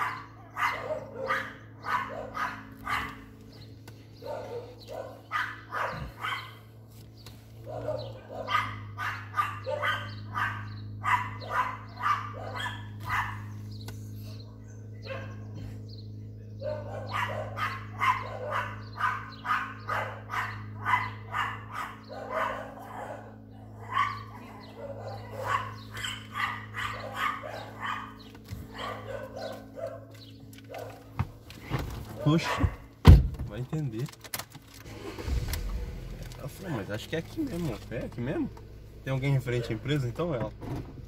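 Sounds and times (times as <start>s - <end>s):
dog barking: 0.0s - 3.3s, 4.2s - 6.6s, 7.6s - 13.6s, 14.2s - 15.6s, 16.6s - 31.2s, 32.1s - 32.9s, 39.5s - 39.9s
steady low hum: 0.0s - 33.6s.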